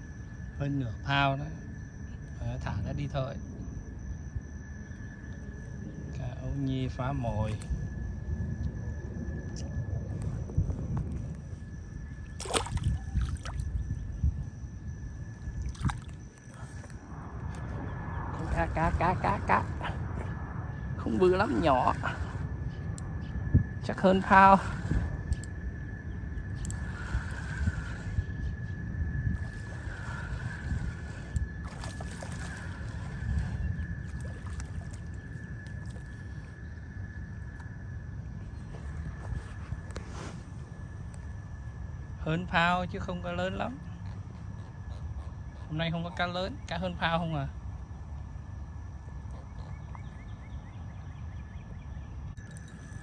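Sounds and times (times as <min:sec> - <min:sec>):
wind rumbling on microphone: 0:00.0 - 0:53.0
fish splashing in water: 0:12.4 - 0:13.7, 0:31.6 - 0:33.4.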